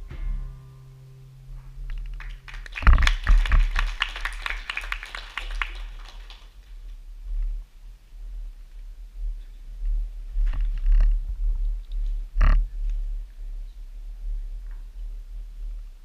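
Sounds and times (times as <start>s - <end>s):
guitar chord ringing: 0.0s - 2.6s
small audience clapping: 2.0s - 6.8s.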